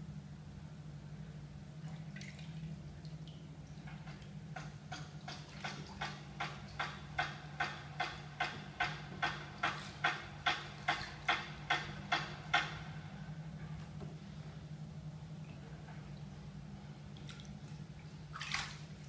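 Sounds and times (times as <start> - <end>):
low hum: 0.0 - 19.0
water dripping into bathtub: 1.9 - 12.8, 17.1 - 19.0.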